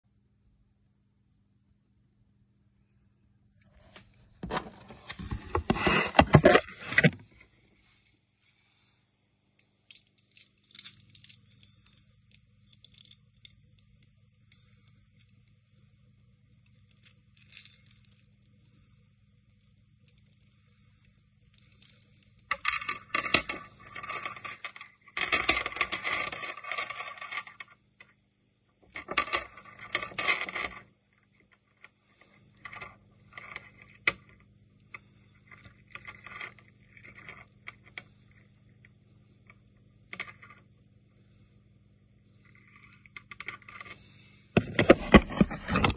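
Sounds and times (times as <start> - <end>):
necklace beads clicking and rattling: 9.6 - 14.6.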